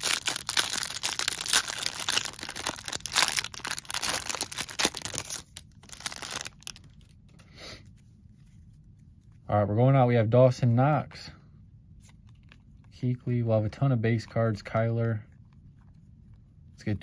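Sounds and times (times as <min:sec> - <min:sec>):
cellophane wrapping crinkling and tearing: 0:00.0 - 0:07.2.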